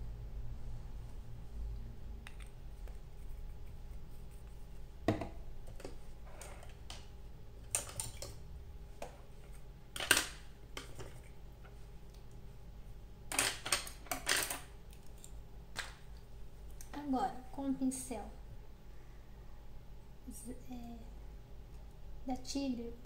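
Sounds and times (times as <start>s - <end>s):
painting supplies clicking and tapping: 2.2s - 3.0s, 5.1s - 8.4s, 13.3s - 16.0s.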